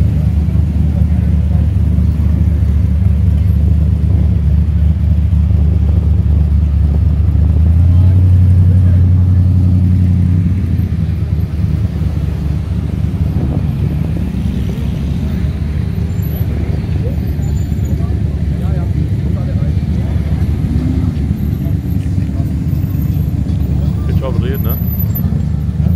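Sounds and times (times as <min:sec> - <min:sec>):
sports car engines driving past: 0:00.0 - 0:25.9.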